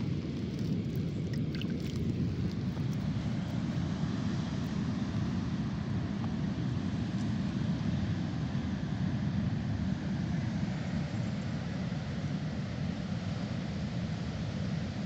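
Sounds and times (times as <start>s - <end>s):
sea rumbling: 0.0s - 4.0s
wind: 0.0s - 15.0s.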